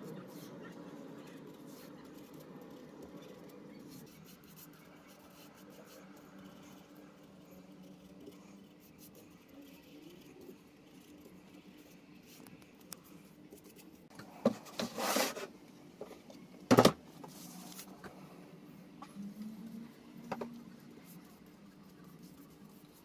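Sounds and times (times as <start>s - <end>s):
wooden frame scraping and rustling: 14.5s - 15.5s.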